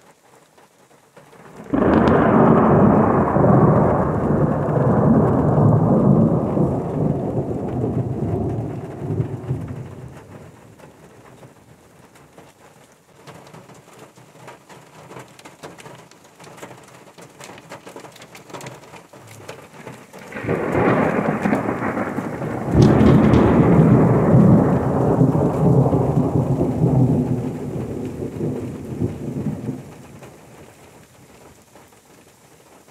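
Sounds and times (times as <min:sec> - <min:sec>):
rain falling in forest: 0:00.0 - 0:32.9
thunder rumbling: 0:01.5 - 0:12.1, 0:19.2 - 0:31.6.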